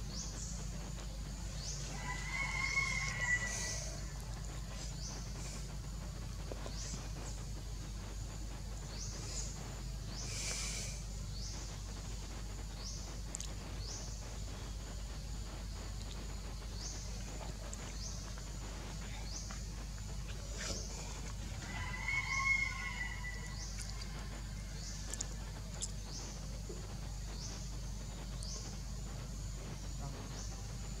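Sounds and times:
low forest rumble: 0:00.0 - 0:31.0
hissy burst: 0:09.0 - 0:11.5.

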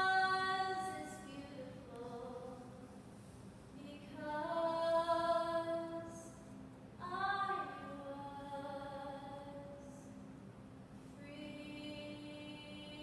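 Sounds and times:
young woman singing: 0:00.0 - 0:02.8, 0:03.8 - 0:06.4, 0:07.0 - 0:10.1, 0:11.2 - 0:13.0.

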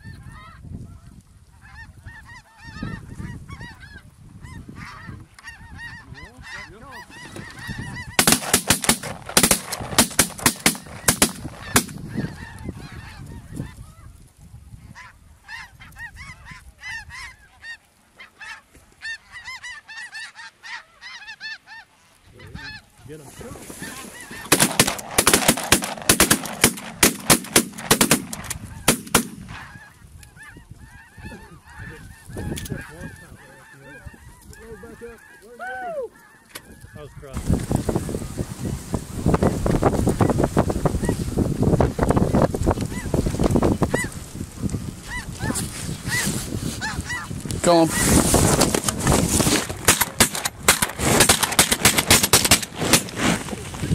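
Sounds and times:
geese honking: 0:00.0 - 0:53.9
shotgun fire: 0:08.2 - 0:12.0, 0:24.5 - 0:29.6.

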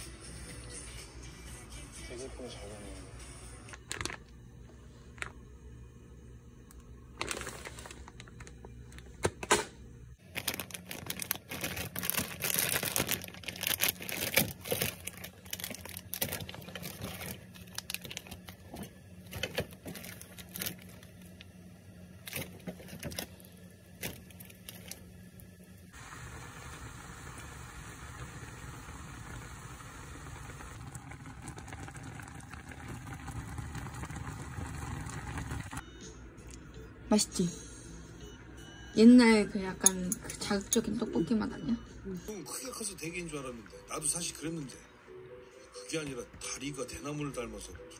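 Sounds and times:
background hum: 0:00.0 - 0:44.3
plastic packaging crinkling: 0:03.7 - 0:04.3, 0:07.2 - 0:09.1, 0:10.2 - 0:21.4, 0:22.2 - 0:25.1.

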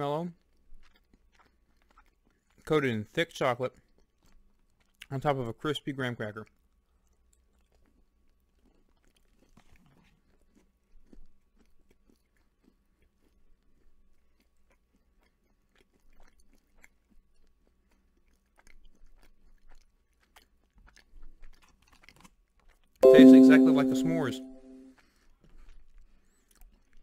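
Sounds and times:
person chewing crunchy food: 0:00.4 - 0:02.7, 0:03.8 - 0:05.1, 0:06.5 - 0:22.9.

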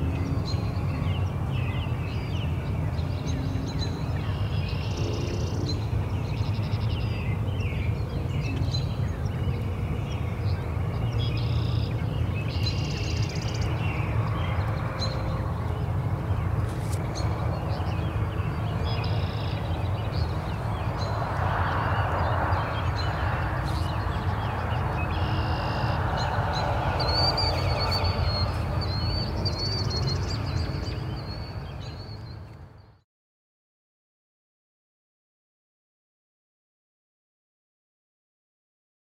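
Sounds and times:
small birds chirping: 0:00.0 - 0:33.0
steady low rumble: 0:13.3 - 0:32.0.

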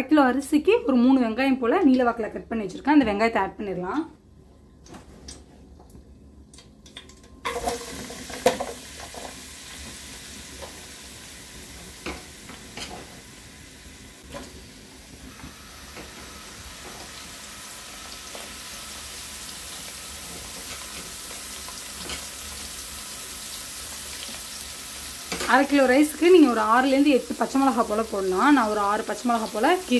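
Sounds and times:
onions sizzling in oil: 0:07.4 - 0:29.9.

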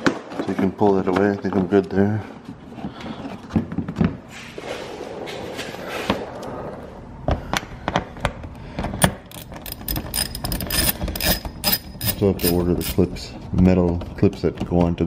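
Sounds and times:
hand ratchet clicking: 0:09.0 - 0:13.1.

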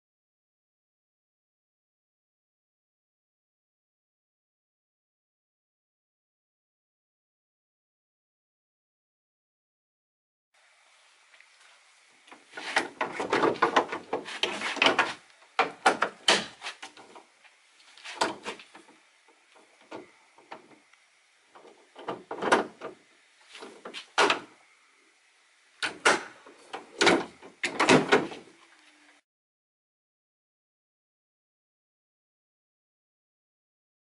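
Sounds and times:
metal outrigger clattering and knocking: 0:12.6 - 0:17.2, 0:25.8 - 0:28.4.

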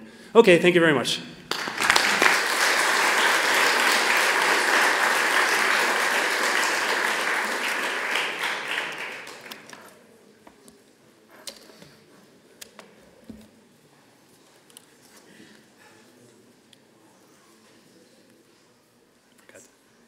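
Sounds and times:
audience applauding: 0:01.5 - 0:09.8.

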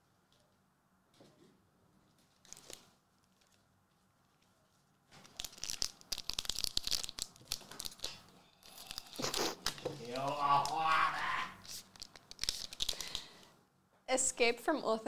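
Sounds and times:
soft rustle: 0:01.2 - 0:05.4
foil wrapper crackling: 0:02.0 - 0:13.4.

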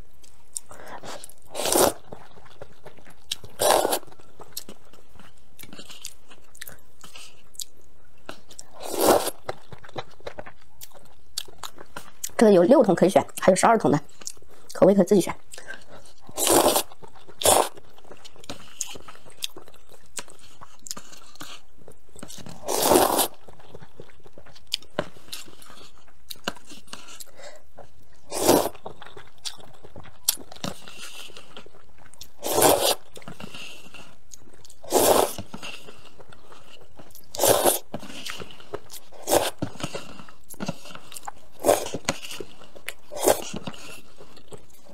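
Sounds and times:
chewing: 0:00.2 - 0:12.4, 0:14.1 - 0:14.8, 0:15.5 - 0:44.9
person slurping noodles: 0:01.0 - 0:02.0, 0:03.5 - 0:04.1, 0:08.7 - 0:09.4, 0:16.3 - 0:17.8, 0:22.6 - 0:23.4, 0:28.3 - 0:28.8, 0:32.4 - 0:33.9, 0:34.8 - 0:35.9, 0:37.3 - 0:38.4, 0:39.2 - 0:40.1, 0:41.5 - 0:44.1.

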